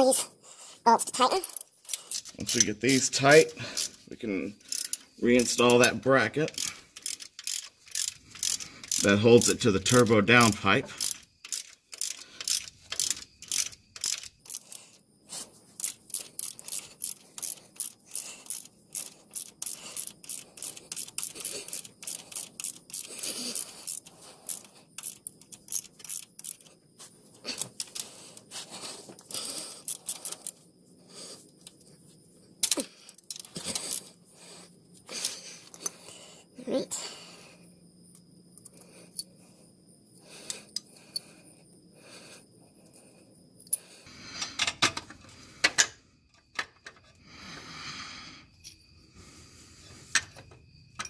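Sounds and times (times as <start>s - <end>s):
socket ratchet clicking: 1.4s - 3.0s, 4.6s - 15.0s, 15.8s - 26.7s, 27.5s - 28.4s, 32.6s - 34.0s.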